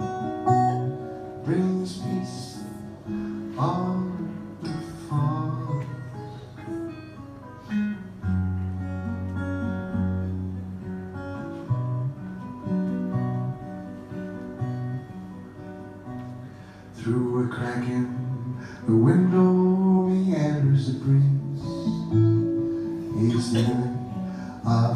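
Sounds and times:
acoustic guitar playing: 0.0 - 24.9.

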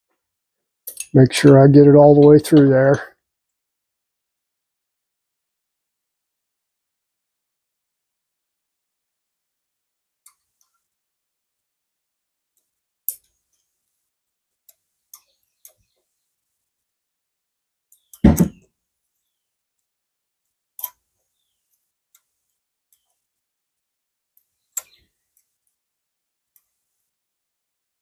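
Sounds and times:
loud knock: 18.2 - 18.6.

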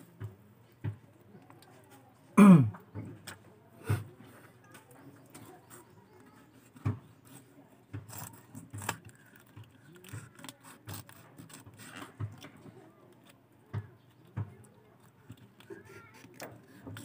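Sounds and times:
knife scraping fish: 6.5 - 13.4, 15.0 - 17.0.

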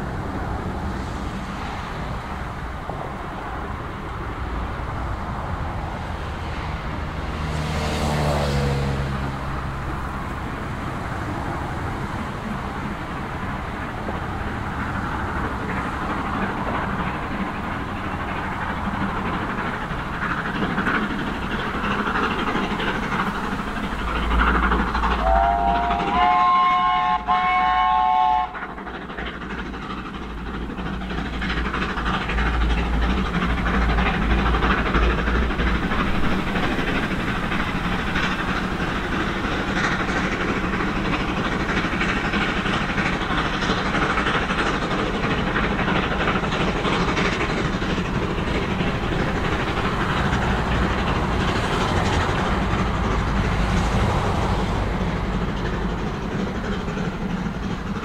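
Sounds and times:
steam locomotive exhaust: 0.0 - 58.0
steam whistle: 25.2 - 28.6.

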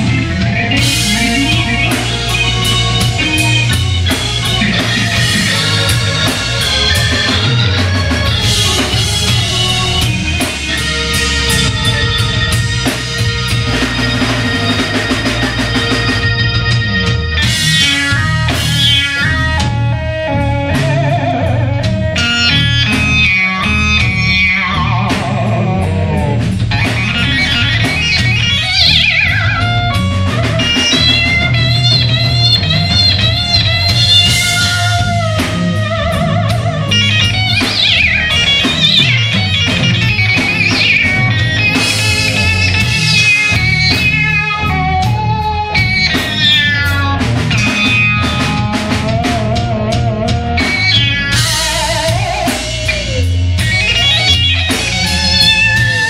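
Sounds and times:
bass guitar: 0.0 - 56.0
drum kit: 0.0 - 56.0
electric guitar lead: 0.0 - 56.0.

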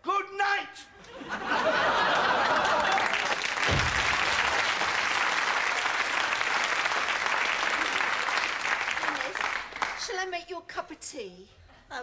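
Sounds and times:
audience applauding: 1.8 - 10.1
short low thump: 3.7 - 4.2.

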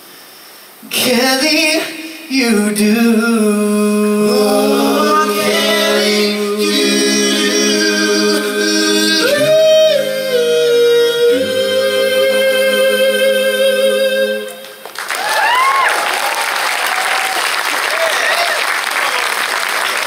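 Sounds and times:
men singing in close harmony: 0.9 - 14.7.

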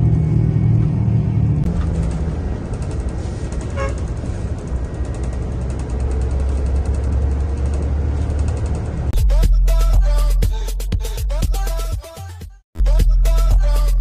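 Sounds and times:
bus engine and road noise: 0.0 - 11.2
vehicle horn toot: 3.7 - 4.0.

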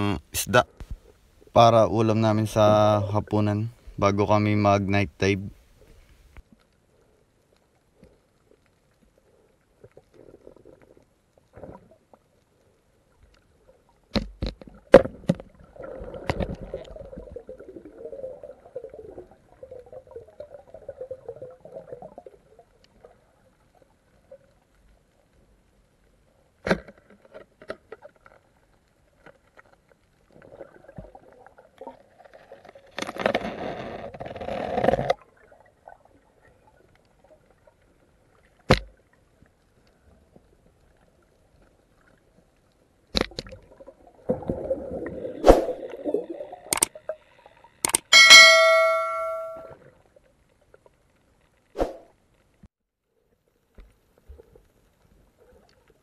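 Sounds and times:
gurgling bubbling water: 15.5 - 22.6
sharp knocks underwater: 38.7 - 38.9, 47.9 - 49.6.

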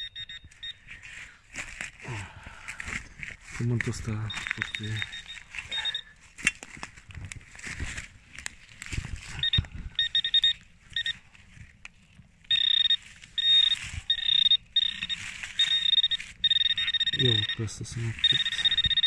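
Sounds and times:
metal detector beeps: 0.0 - 1.0, 3.8 - 6.2, 9.3 - 11.2, 12.5 - 19.0
probe scraping and knocking soil: 2.8 - 5.3.

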